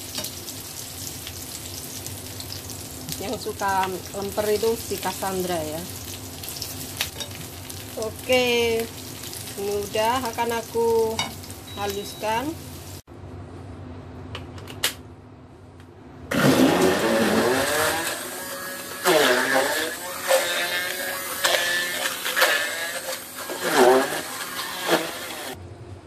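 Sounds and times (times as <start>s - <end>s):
stick blender motor whining: 16.3s - 25.6s.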